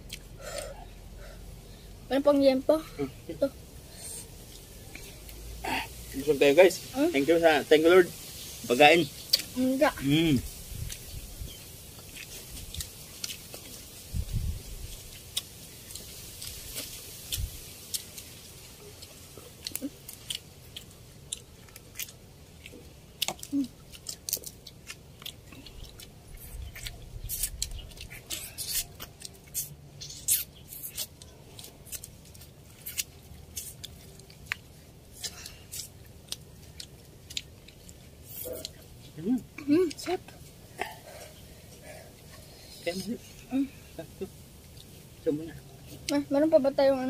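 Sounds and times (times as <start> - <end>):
chewing and lip smacks: 0.0 - 0.9, 10.8 - 14.0, 14.9 - 39.2.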